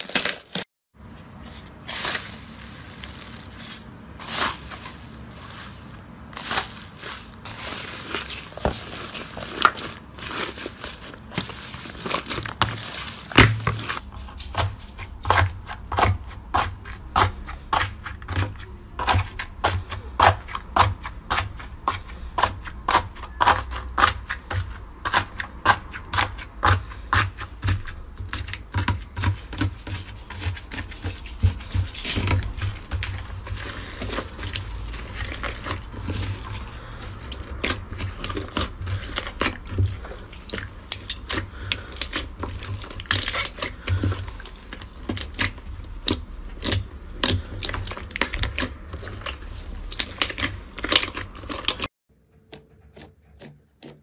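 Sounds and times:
slime crackling and popping: 19.1 - 51.9.

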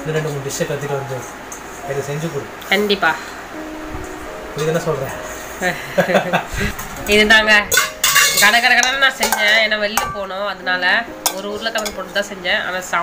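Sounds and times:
metal spatula scraping pan: 7.7 - 10.1.

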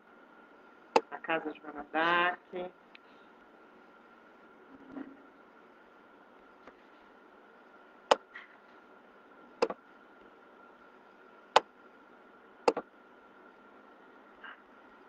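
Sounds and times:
thin hum: 2.9 - 15.0
sharp clicks: 12.7 - 12.9.

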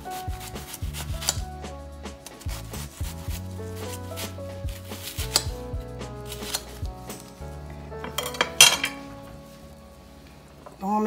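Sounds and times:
knife slicing onion: 0.0 - 5.6, 6.2 - 7.3
background music with held notes: 0.0 - 11.0.

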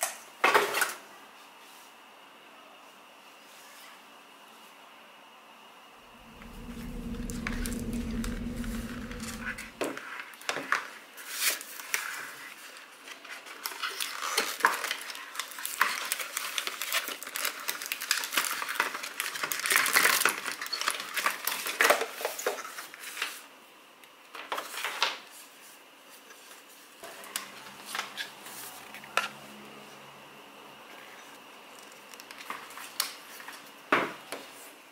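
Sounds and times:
low steady hum: 6.1 - 9.8.

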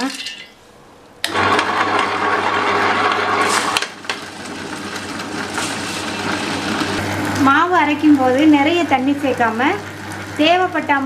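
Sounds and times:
stone rollers grinding batter: 1.2 - 7.5
wet grinder motor hum: 1.2 - 11.0.

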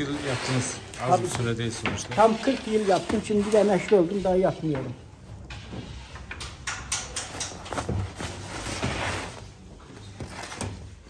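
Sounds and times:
knocks and clatter of tools: 1.2 - 9.1.

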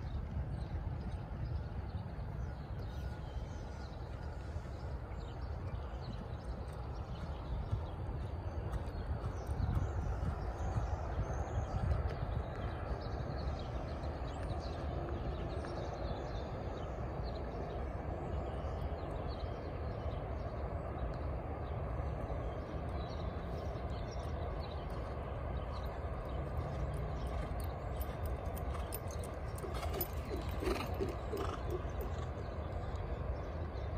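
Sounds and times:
horse hoofbeats on dirt: 2.8 - 15.8, 24.0 - 33.1.

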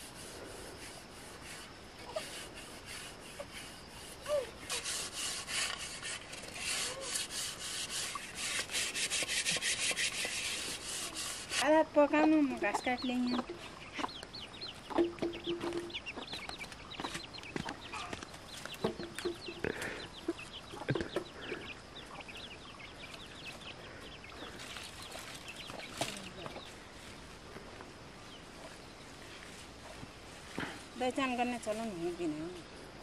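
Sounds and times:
chickens clucking: 0.0 - 30.1.

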